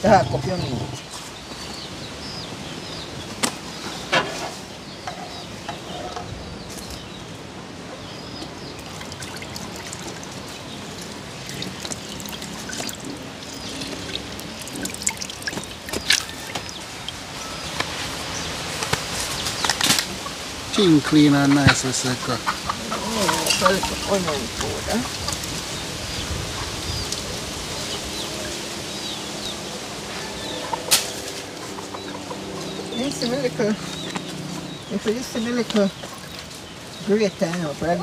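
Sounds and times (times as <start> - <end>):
water pouring from a pot: 8.8 - 17.3.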